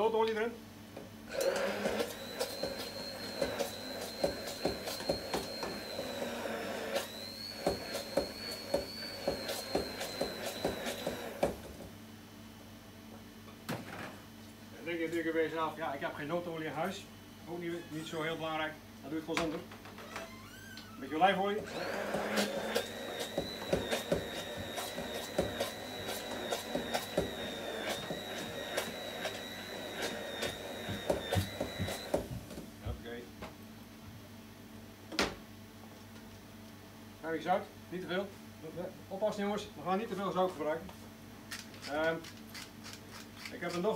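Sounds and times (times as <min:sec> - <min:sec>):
stick blender whining: 0:01.3 - 0:11.8, 0:21.5 - 0:32.6
blender head knocking on jug: 0:23.1 - 0:28.2.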